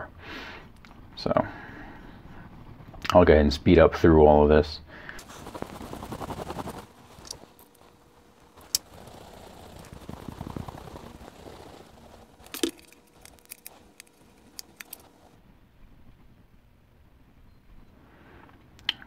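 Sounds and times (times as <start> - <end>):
soft handling rustle: 5.2 - 15.4.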